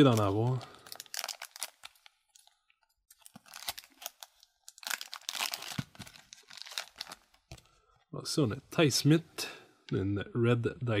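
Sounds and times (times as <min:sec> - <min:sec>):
foil wrapper crinkling and tearing: 0:00.0 - 0:07.5.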